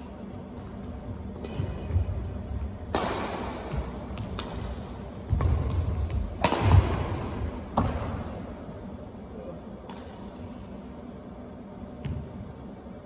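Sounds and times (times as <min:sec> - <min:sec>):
rackets striking shuttlecock: 0:01.3 - 0:08.5, 0:09.8 - 0:10.4.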